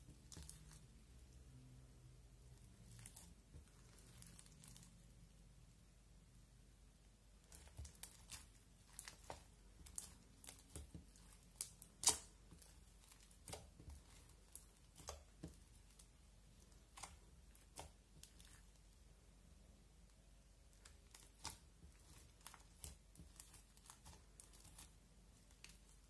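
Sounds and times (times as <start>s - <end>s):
slime crackling and popping: 7.4s - 19.0s, 20.7s - 26.0s.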